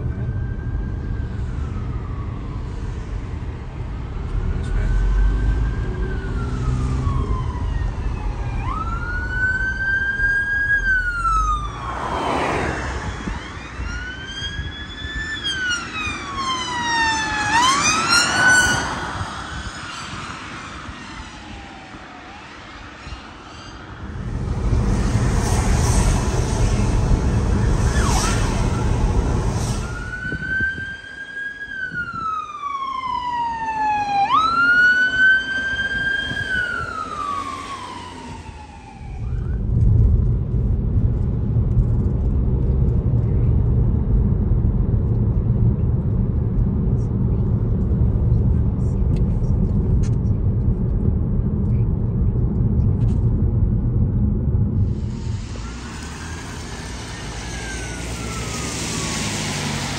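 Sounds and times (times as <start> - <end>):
emergency vehicle siren wailing: 0.0 - 40.3, 54.7 - 59.9
loud rushing road noise: 0.0 - 59.9.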